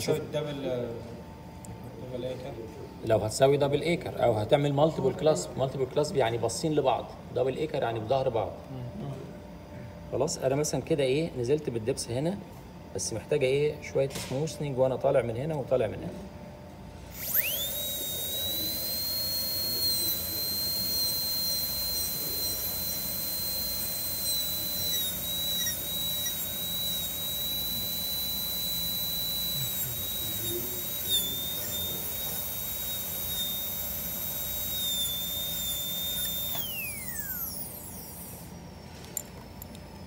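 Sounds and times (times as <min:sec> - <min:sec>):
dental drill whine: 0:17.1 - 0:40.0.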